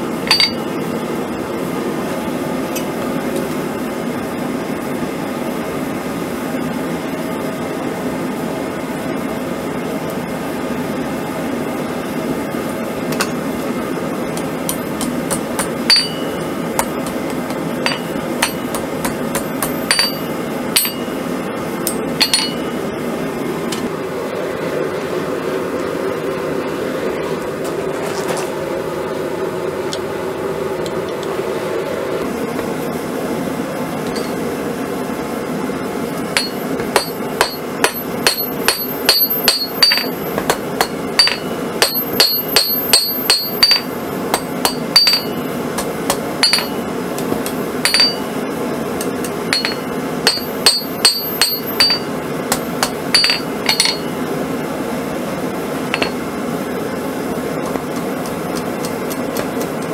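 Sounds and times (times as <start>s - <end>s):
steady hum: 0.0s - 59.9s
hammer striking steel on anvil: 0.2s - 0.8s, 14.3s - 21.2s, 21.8s - 22.8s, 34.0s - 34.4s, 36.3s - 48.4s, 49.0s - 54.2s, 55.9s - 56.2s.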